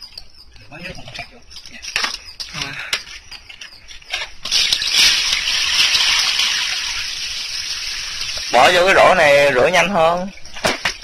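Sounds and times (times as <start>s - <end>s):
water splashing onto concrete: 4.4s - 9.2s.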